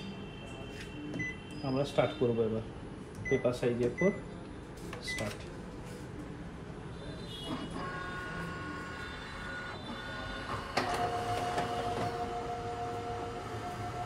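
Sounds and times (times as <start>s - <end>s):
photocopier motors whirring: 7.5s - 14.0s.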